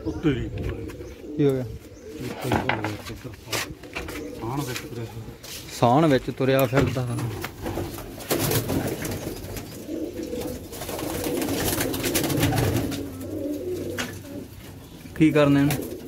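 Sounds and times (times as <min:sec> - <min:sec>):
pigeons cooing: 0:00.0 - 0:05.6, 0:07.1 - 0:16.0
wings fluttering: 0:07.4 - 0:14.4.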